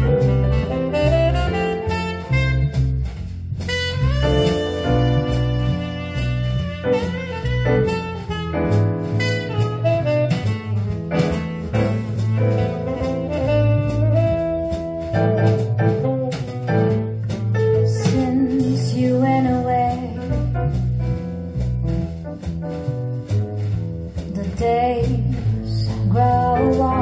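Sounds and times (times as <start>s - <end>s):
saxophone melody: 0.0s - 17.0s
deep bass line: 0.0s - 27.0s
drums: 0.0s - 27.0s.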